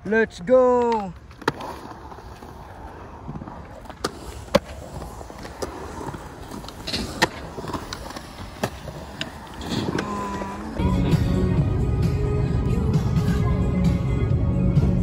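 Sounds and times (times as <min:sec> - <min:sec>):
skateboards clacking on ground: 0:00.0 - 0:10.8
skateboard wheels rumbling on concrete: 0:00.0 - 0:11.1.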